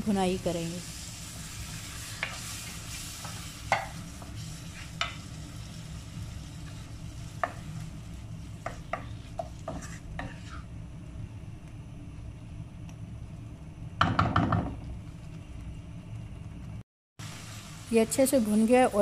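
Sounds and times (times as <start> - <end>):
light sizzle: 0.0 - 14.0, 14.8 - 19.0
steady low hum: 0.0 - 19.0
spatula scraping a pan: 1.4 - 5.8, 8.6 - 10.7.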